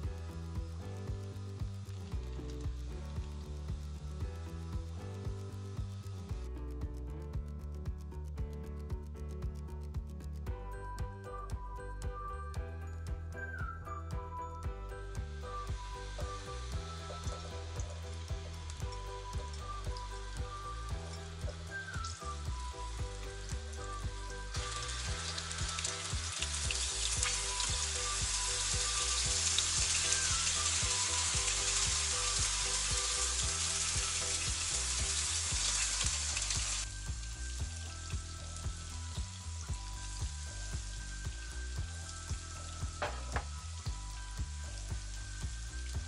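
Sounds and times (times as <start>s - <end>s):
beans sizzling in oil: 15.6s - 46.0s
sharp tap: 43.0s - 43.6s.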